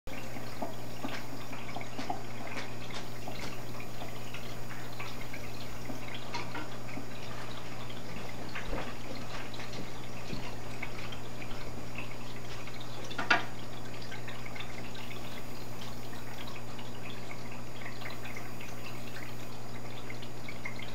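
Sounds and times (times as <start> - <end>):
aquarium filter hum: 0.1 - 20.9
water plop: 0.1 - 20.9
water trickling and dripping: 0.1 - 20.9.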